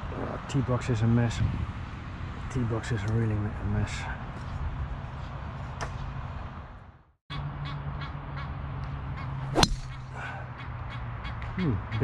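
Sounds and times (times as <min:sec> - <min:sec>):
outdoor background noise: 0:00.0 - 0:12.0
golf club striking ball: 0:09.5 - 0:10.1.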